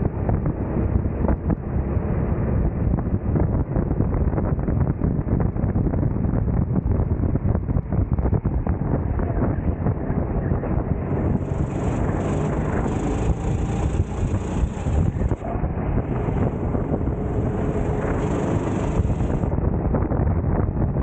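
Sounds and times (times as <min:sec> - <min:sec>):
wind buffeting microphone: 0:00.0 - 0:21.0
racing kart engine: 0:11.0 - 0:19.6.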